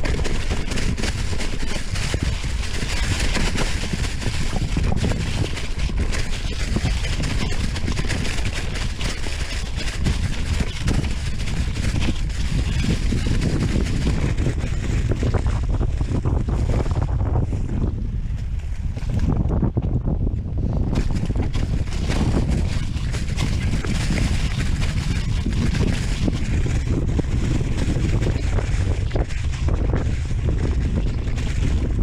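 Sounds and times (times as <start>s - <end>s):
tyres rolling over dirt and leaves: 0.0s - 16.5s
wind buffeting microphone: 0.0s - 32.0s.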